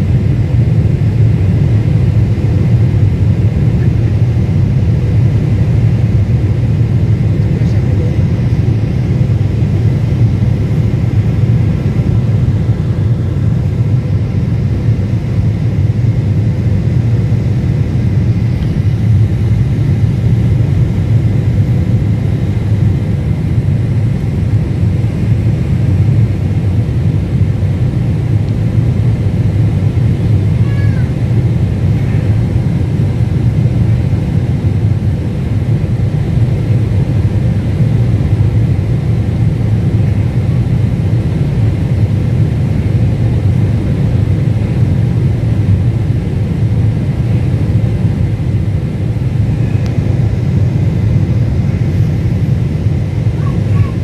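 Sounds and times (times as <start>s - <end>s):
airliner cabin engine rumble: 0.0s - 54.0s
rushing air: 43.6s - 54.0s.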